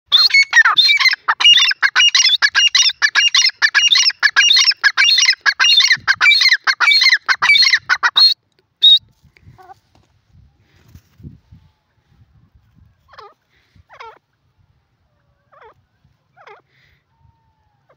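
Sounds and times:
bird calling harsh repeated notes: 0:00.1 - 0:09.0.

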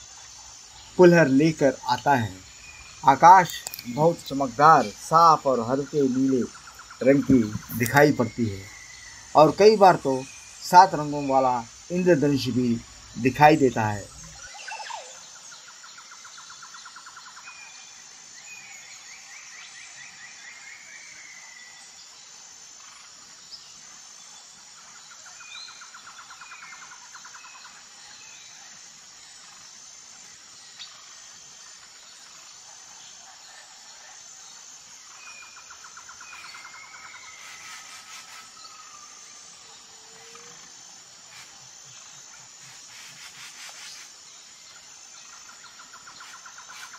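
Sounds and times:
birds trilling and chirping: 0:00.0 - 0:46.9
insect buzz: 0:00.0 - 0:46.9
faint clicks: 0:03.4 - 0:04.0.

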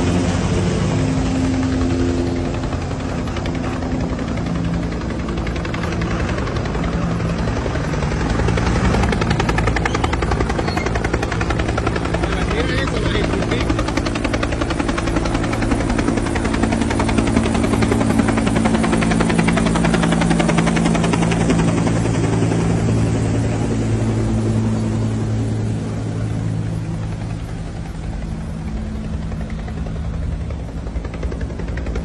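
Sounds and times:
helicopter rotor chopping: 0:00.0 - 0:32.0.

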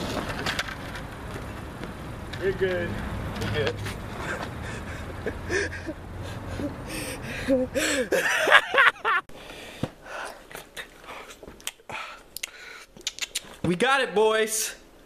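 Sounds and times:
person gasping and exclaiming: 0:06.4 - 0:08.2.

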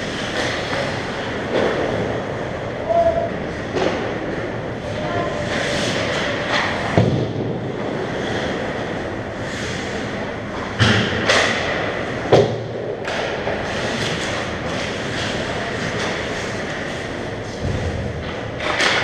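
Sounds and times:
skates scraping ice: 0:00.0 - 0:02.2, 0:03.4 - 0:07.0, 0:07.7 - 0:12.1, 0:13.1 - 0:19.0
hockey sticks and puck knocking: 0:10.8 - 0:16.9, 0:17.6 - 0:19.0.

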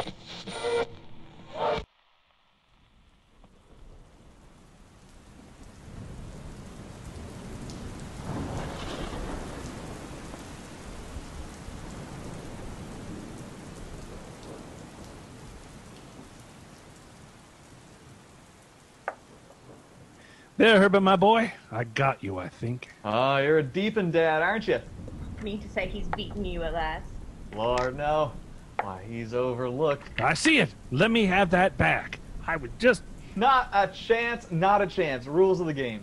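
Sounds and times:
steady rain: 0:01.6 - 0:36.0
thunder rumbling: 0:03.6 - 0:18.1, 0:22.9 - 0:36.0.

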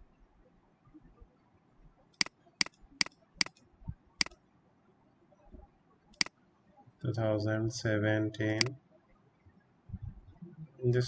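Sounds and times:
computer mouse clicking: 0:02.1 - 0:04.4, 0:06.1 - 0:06.4, 0:08.6 - 0:08.8.

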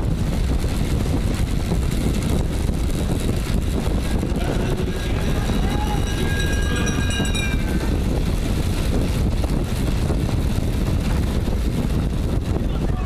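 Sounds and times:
bike tyres rolling on wooden boards: 0:00.0 - 0:12.7
wind buffeting microphone: 0:00.0 - 0:13.0
thin high whine: 0:04.0 - 0:08.7.

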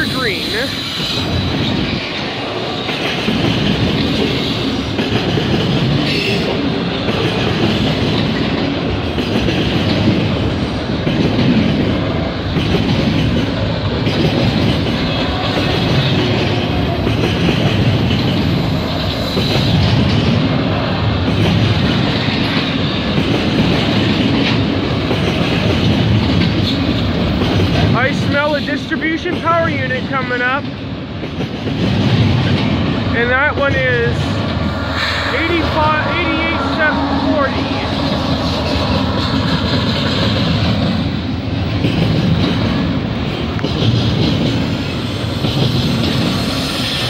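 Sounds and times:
train wheels rumbling on rails: 0:00.0 - 0:47.0.

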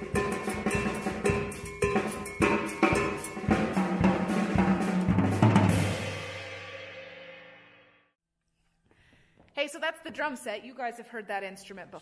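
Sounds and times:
drum kit playing fast groove: 0:00.0 - 0:06.9.

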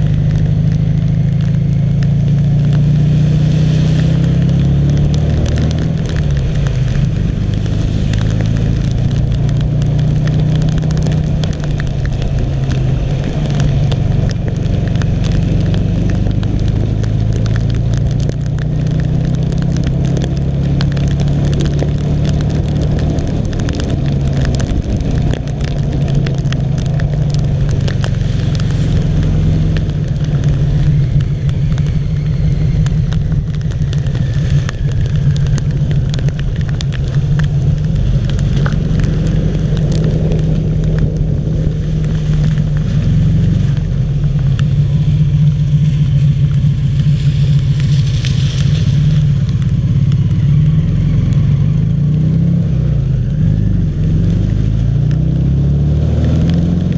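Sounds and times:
raindrops hitting camera: 0:00.0 - 0:56.9
wind and road noise: 0:00.0 - 0:56.9
trike engine running: 0:20.9 - 0:51.9.

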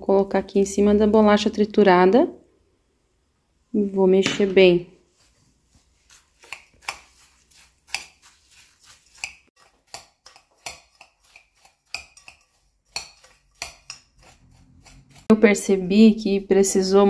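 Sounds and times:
metal spoon scraping glass bowl: 0:06.1 - 0:16.3.

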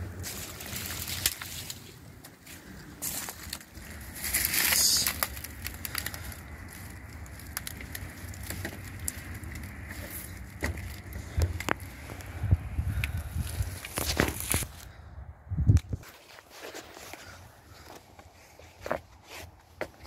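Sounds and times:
footsteps through dry leaves: 0:00.0 - 0:12.5
twigs crackling: 0:00.0 - 0:15.0.

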